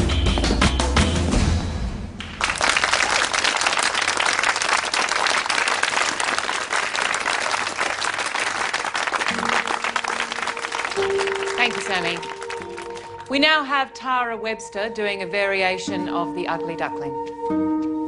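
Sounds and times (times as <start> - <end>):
crowd applauding: 2.2 - 13.3.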